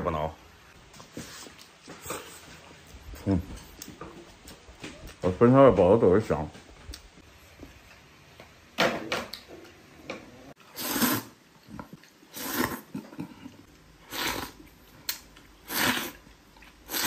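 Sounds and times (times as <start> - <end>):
person slurping noodles: 10.6 - 11.4, 12.3 - 14.7, 15.6 - 17.0.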